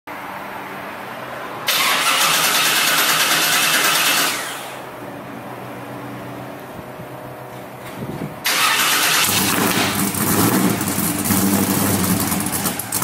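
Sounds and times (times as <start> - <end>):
car engine starting and idling: 1.6 - 5.2, 7.8 - 13.0.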